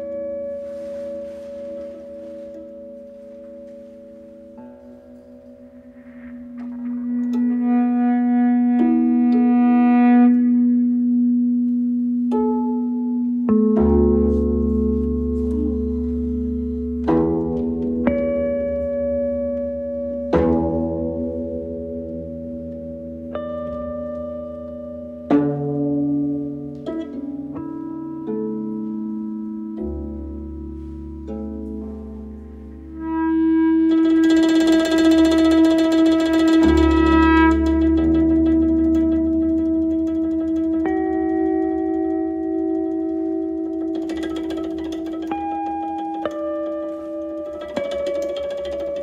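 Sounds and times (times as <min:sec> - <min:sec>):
deep low tone: 0:00.0 - 0:12.0, 0:14.3 - 0:20.2
electric guitar notes: 0:00.0 - 0:12.1, 0:32.4 - 0:49.0
plucked koto notes: 0:11.7 - 0:49.0.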